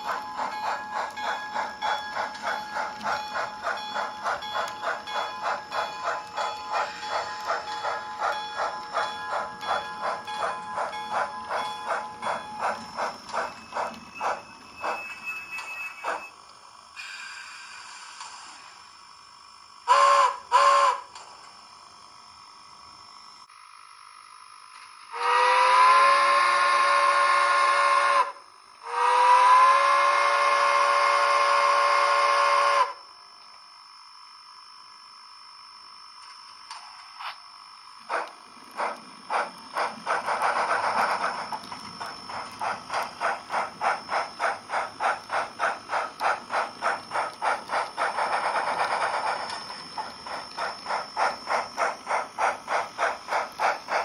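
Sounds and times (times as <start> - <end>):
steam locomotive exhaust chuffs: 0.0 - 21.8, 25.0 - 33.0, 38.0 - 54.0
steam locomotive whistle blasts: 19.9 - 21.1, 25.1 - 33.0.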